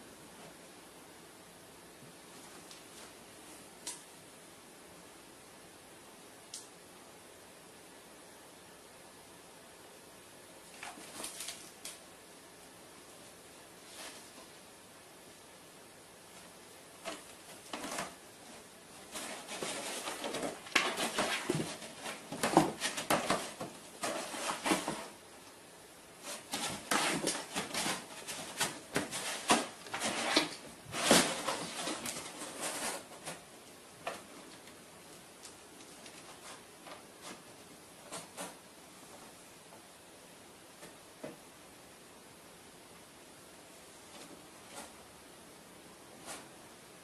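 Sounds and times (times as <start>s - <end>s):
cardboard box rustling and scraping: 19.0s - 25.2s, 26.2s - 33.4s.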